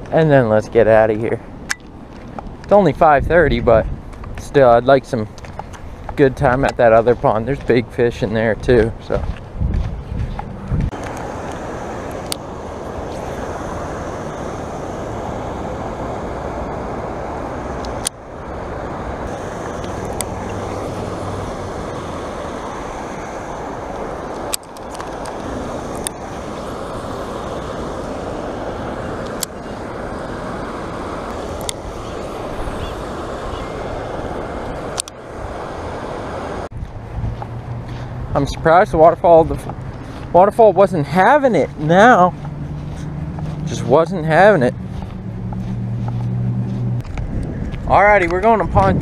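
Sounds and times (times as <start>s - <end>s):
waterfall rushing into pond: 11.0s - 36.7s.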